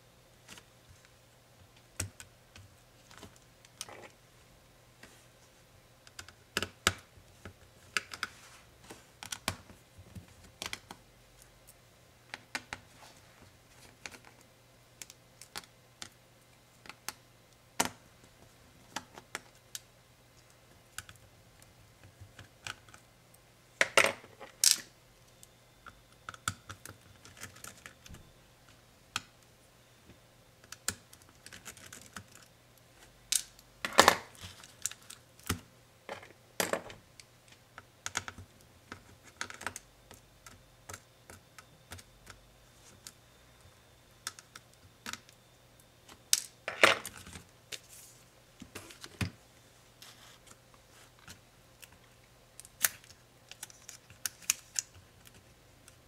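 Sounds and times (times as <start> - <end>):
faint low hum: 0.0 - 56.0
clicks and taps on laptop parts: 6.0 - 11.0, 38.0 - 43.2.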